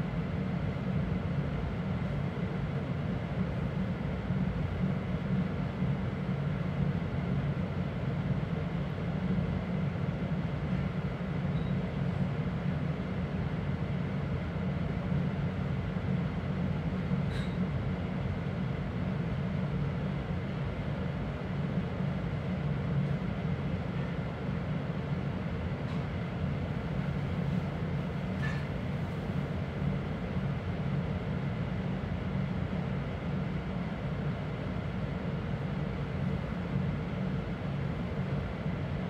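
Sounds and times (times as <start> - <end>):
train carriage rumbling: 24.6 - 39.0.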